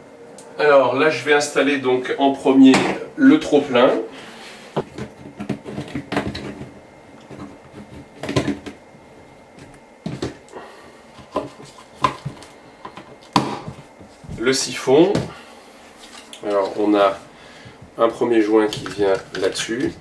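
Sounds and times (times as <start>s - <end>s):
plastic knocking against bathtub: 4.8s - 8.8s.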